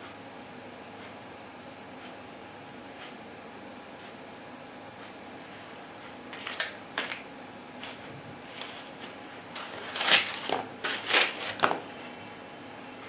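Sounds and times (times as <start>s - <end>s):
foam packing rustles and scrapes: 7.8s - 11.8s.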